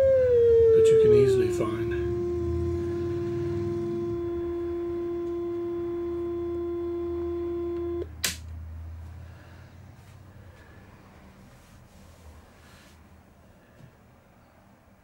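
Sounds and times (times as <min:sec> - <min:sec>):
steady electronic tone: 0:00.0 - 0:08.1
low electrical hum: 0:00.0 - 0:15.0.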